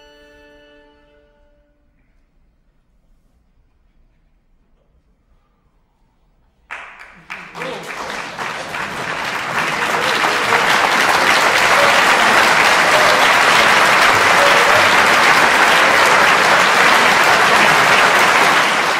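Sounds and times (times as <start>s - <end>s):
audience applauding: 6.7s - 18.9s.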